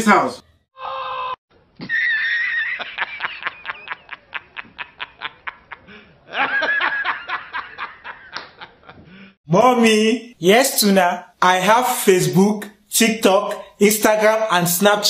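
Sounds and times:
man laughing: 1.8s - 9.3s.

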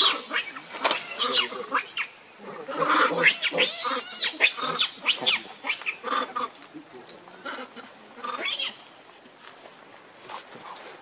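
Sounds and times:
baby monkey squealing: 0.0s - 2.1s, 2.8s - 6.4s.

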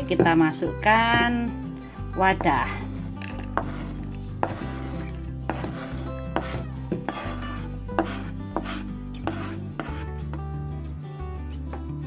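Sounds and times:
background music: 0.0s - 12.0s
knife scraping cutting board: 3.4s - 10.1s.

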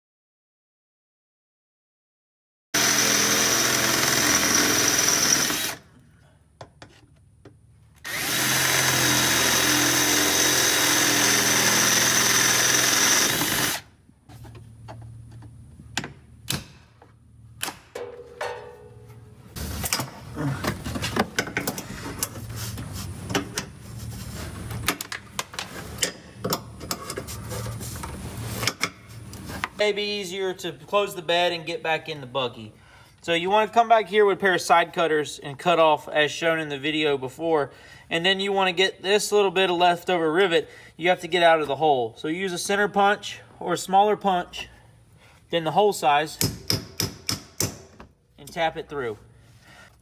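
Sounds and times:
power drill drilling rivets: 2.8s - 5.9s, 8.0s - 13.9s.

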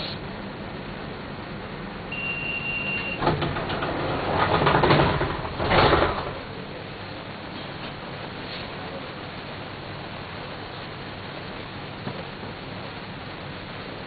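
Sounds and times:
pneumatic doors hissing: 0.0s - 0.3s
high beep: 2.1s - 3.2s
bus engine hum: 2.9s - 14.0s.

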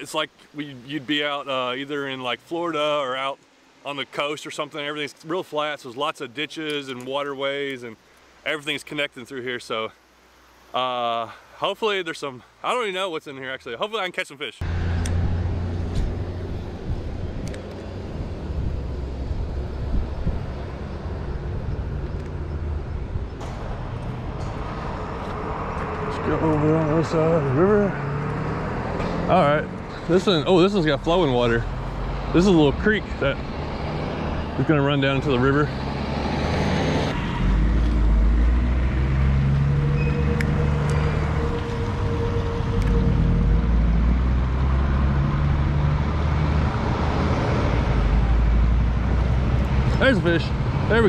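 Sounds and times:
road traffic rumble: 14.6s - 51.0s
vehicle engines humming: 14.6s - 51.0s.

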